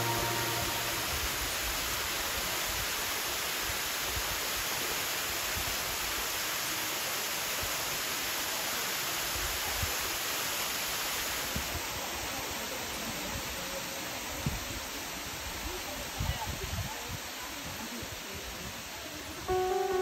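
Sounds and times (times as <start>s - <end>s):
waterfall rushing: 0.0s - 3.6s.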